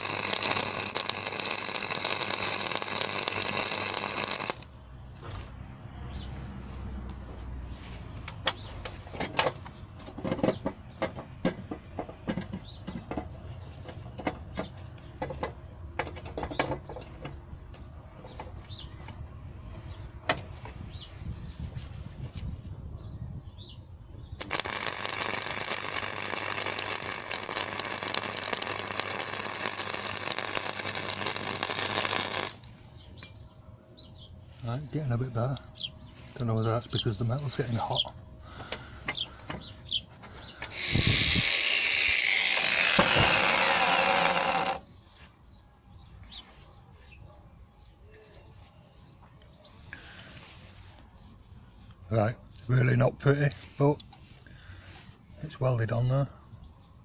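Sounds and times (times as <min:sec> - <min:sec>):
welder arc running: 0:00.0 - 0:04.7, 0:24.4 - 0:32.7, 0:40.7 - 0:44.8
scattered clicks and knocks: 0:08.3 - 0:19.2.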